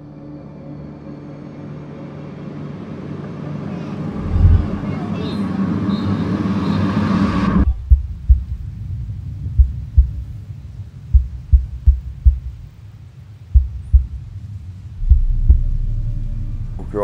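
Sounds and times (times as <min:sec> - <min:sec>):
rush of noise: 0:02.6 - 0:05.8, 0:13.5 - 0:17.0
low thump: 0:15.0 - 0:17.0.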